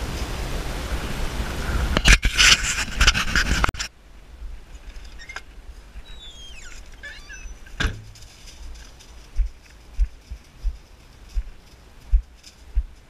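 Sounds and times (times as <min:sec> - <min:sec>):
bird chirps: 0:06.0 - 0:08.2.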